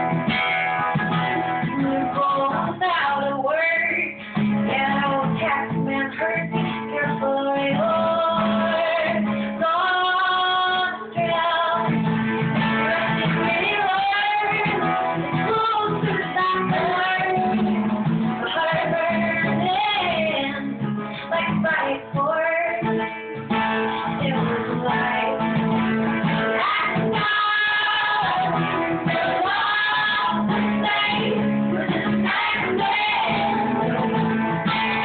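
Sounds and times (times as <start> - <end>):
acoustic guitar: 0.0 - 35.0
woman singing: 1.0 - 35.0.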